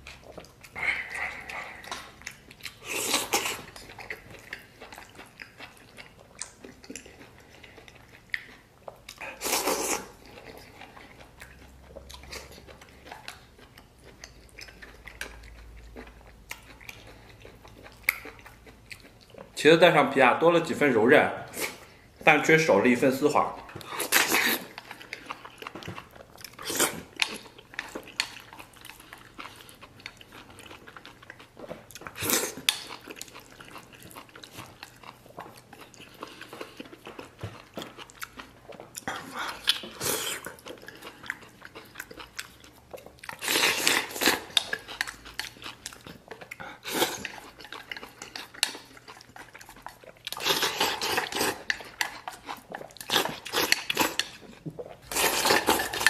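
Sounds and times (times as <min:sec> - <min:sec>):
slurping: 0:00.0 - 0:12.6, 0:42.6 - 0:56.0
chewing: 0:00.0 - 0:19.6, 0:21.5 - 0:56.0.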